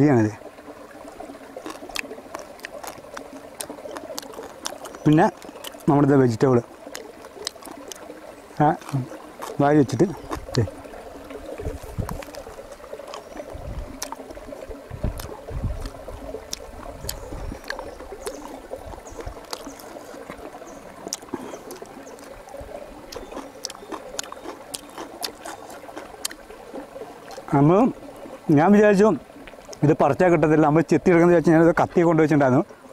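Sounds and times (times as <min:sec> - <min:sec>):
trickle of a shallow stream: 0:00.0 - 0:32.9
man chewing food: 0:01.0 - 0:05.9, 0:06.8 - 0:27.5.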